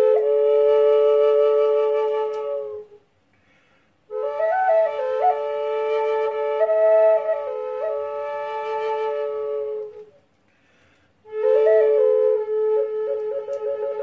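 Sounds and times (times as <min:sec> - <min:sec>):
flute drone note: 0:00.0 - 0:03.0, 0:11.2 - 0:14.0
flute melody: 0:00.0 - 0:03.1, 0:04.1 - 0:10.3, 0:11.2 - 0:14.0.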